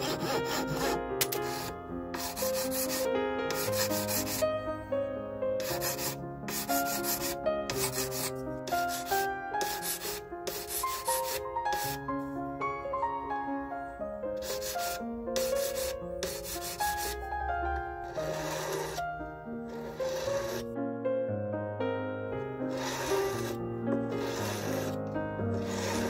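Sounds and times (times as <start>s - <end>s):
file rasping on metal tube: 0.0s - 4.4s, 5.6s - 12.0s, 14.4s - 17.2s, 18.1s - 19.0s, 19.7s - 20.6s, 22.7s - 25.0s, 25.6s - 26.0s.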